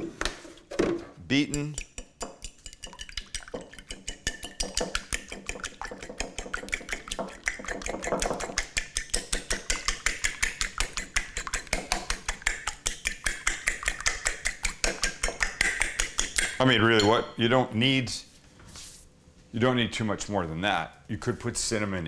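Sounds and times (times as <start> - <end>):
fork beating eggs in bowl: 1.4 - 17.2.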